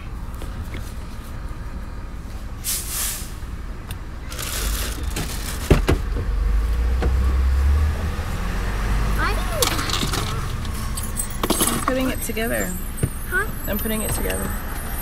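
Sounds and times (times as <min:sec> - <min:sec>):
rustling movement in car: 0:04.2 - 0:07.2
car door shutting: 0:05.0 - 0:06.3.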